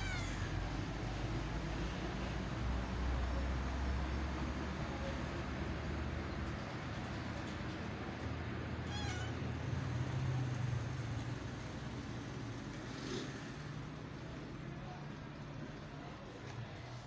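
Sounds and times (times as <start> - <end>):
cat meowing: 0.0 - 0.8, 8.8 - 9.5.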